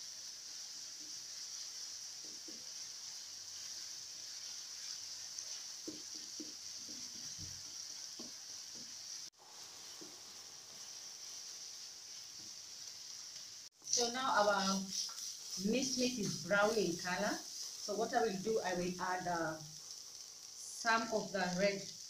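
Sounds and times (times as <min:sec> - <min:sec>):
meat sizzling in a pan: 0:00.0 - 0:22.0
spatula scraping through meat: 0:13.8 - 0:18.0.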